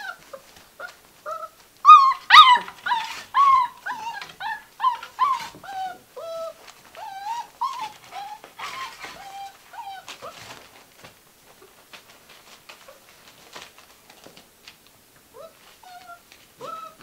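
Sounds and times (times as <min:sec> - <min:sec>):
puppies whimpering: 0:00.0 - 0:10.6, 0:15.4 - 0:17.0
paws pattering on newspaper: 0:00.0 - 0:17.0.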